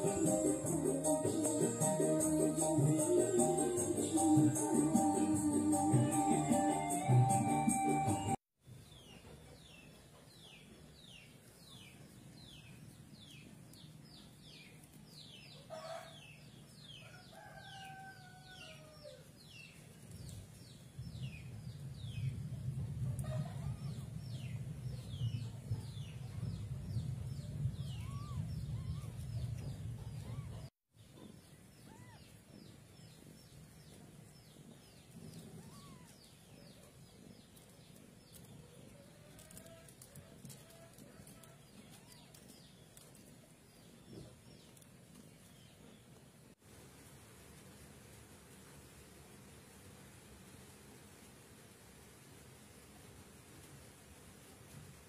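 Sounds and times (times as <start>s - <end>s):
birds peeping: 23.2s - 37.7s.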